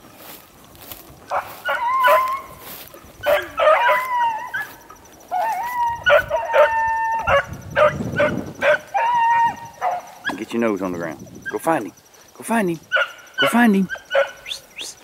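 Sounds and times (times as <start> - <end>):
dogs barking: 1.3 - 10.6, 12.9 - 14.6
dogs howling: 1.3 - 10.6, 12.9 - 14.5.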